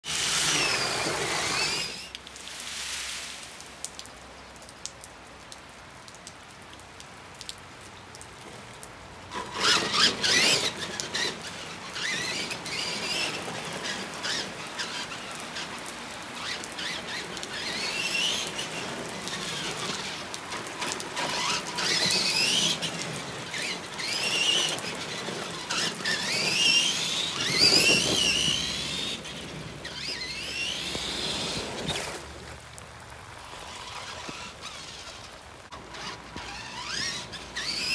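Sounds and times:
electric motors whining: 0:00.0 - 0:02.1, 0:09.3 - 0:32.6, 0:33.3 - 0:37.9
rain hissing: 0:00.0 - 0:37.9.

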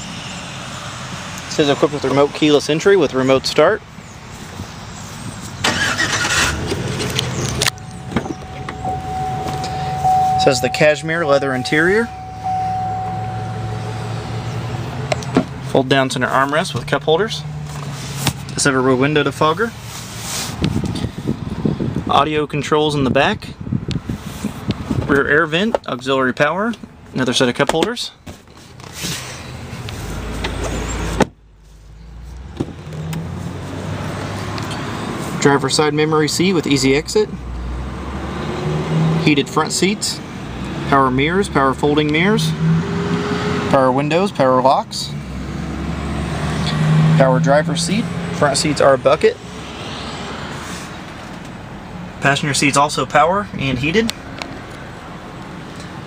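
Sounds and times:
car engine cranking and running: 0:04.4 - 0:22.1
car door shutting: 0:06.4 - 0:13.4
steady high chime tone: 0:07.8 - 0:14.8.

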